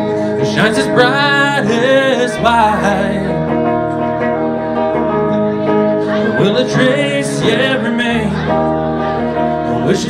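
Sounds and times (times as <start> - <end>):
man singing: 0.0 - 3.9, 6.0 - 10.0
electric guitar chords: 0.0 - 10.0.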